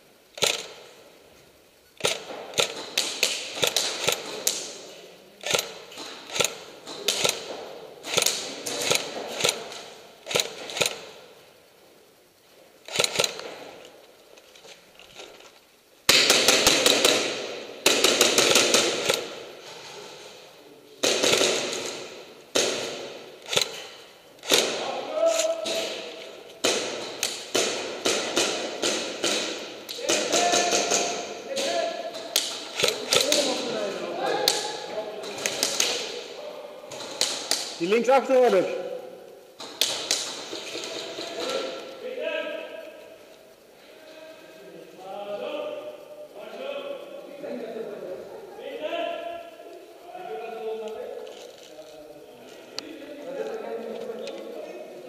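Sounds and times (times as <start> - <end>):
airsoft guns firing in bursts: 0.4 - 0.9, 2.0 - 4.8, 5.4 - 11.2, 12.9 - 13.7, 16.1 - 19.5, 21.0 - 25.0, 25.6 - 31.7.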